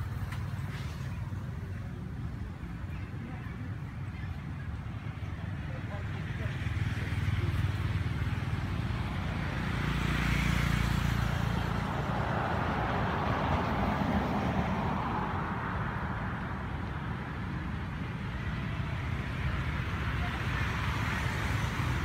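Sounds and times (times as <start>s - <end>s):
road traffic rumble: 0.0s - 22.0s
vehicle passing with hiss: 6.2s - 22.0s.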